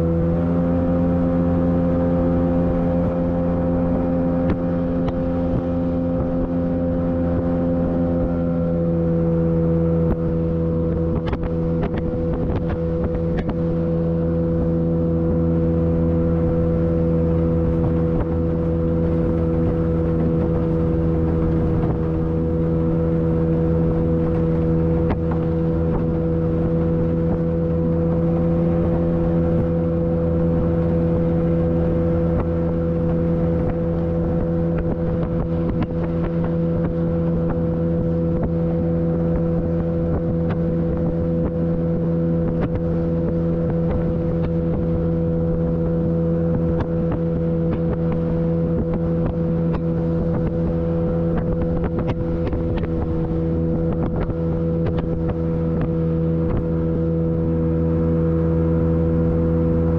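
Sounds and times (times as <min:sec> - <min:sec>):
jet boat motor running: 0:00.0 - 0:59.9
hull knocking on waves: 0:11.0 - 0:13.8.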